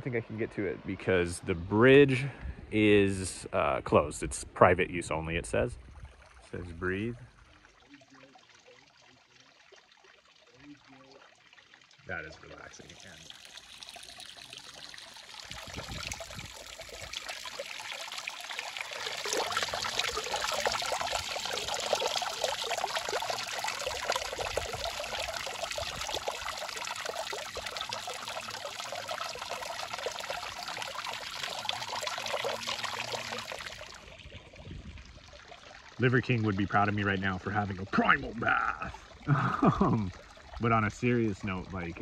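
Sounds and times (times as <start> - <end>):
water trickling and dripping: 0.0 - 42.0.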